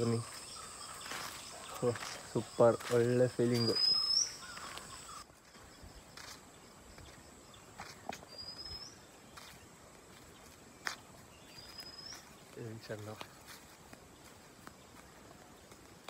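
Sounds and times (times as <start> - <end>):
footsteps on dry leaves: 0.0 - 16.0
bird whistling: 3.6 - 5.2, 8.3 - 9.0.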